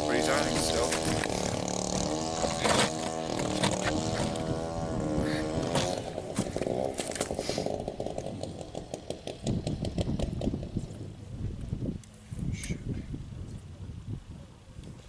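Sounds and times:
fishing reel drag buzzing: 0.0 - 6.0.

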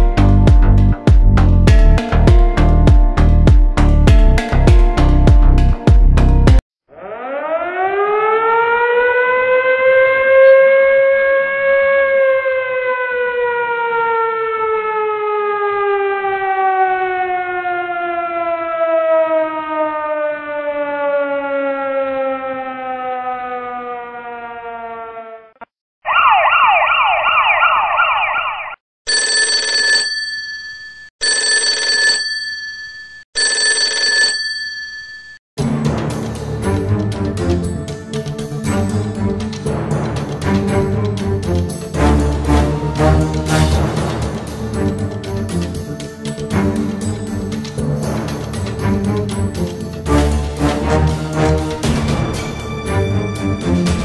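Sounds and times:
fast warbling alarm: 6.9 - 17.4, 18.3 - 28.8
alarm bell ringing: 29.1 - 35.4.

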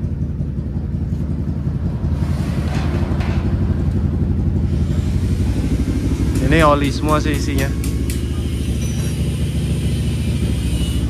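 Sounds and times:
engine rumbling: 0.0 - 11.0.

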